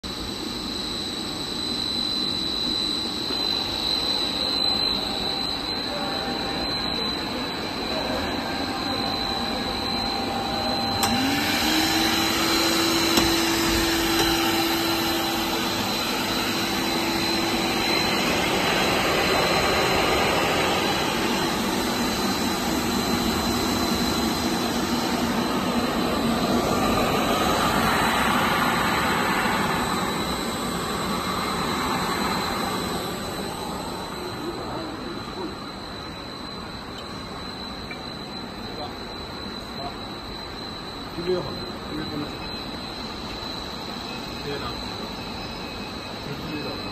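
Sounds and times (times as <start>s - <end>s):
machine noise with high whine: 0.0s - 46.9s
low motor hum rising in pitch: 2.8s - 35.6s.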